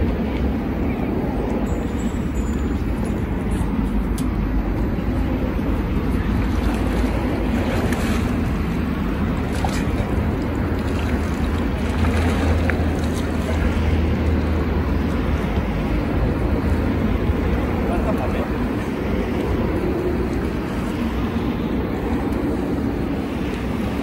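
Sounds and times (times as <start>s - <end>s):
water lapping: 5.0s - 24.0s
faint splashes and knocks: 9.4s - 13.9s.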